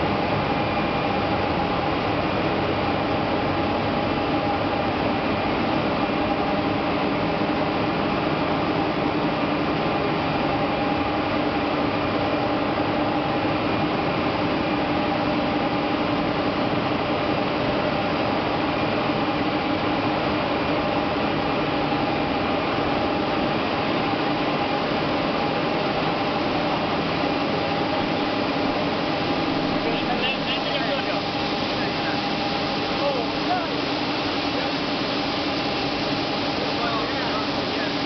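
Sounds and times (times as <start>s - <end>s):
industrial machinery din: 27.9s - 38.0s.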